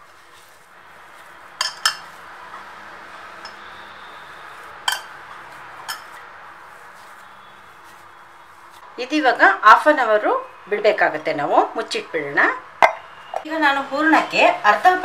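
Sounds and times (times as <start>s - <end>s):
hands kneading dough: 0.0s - 8.8s.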